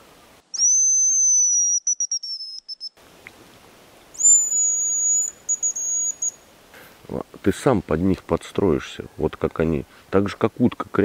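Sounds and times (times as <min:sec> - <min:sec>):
high decoy whistle calls: 0:00.5 - 0:03.0, 0:04.2 - 0:06.4.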